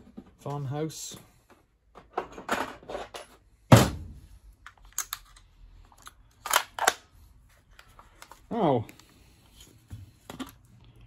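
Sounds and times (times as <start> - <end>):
nail gun magazine clicks and rattles: 4.6 - 7.0.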